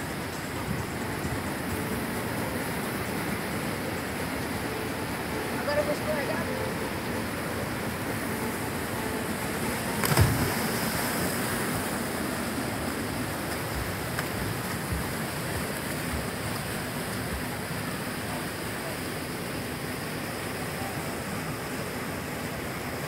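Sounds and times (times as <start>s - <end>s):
waterfall rushing over rocks: 0.0s - 23.0s
person splashing into water: 10.0s - 11.4s.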